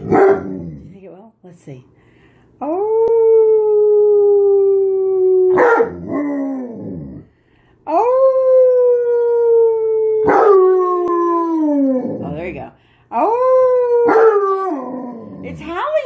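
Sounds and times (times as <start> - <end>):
person imitating wolf howl: 2.6 - 5.6, 7.9 - 12.4.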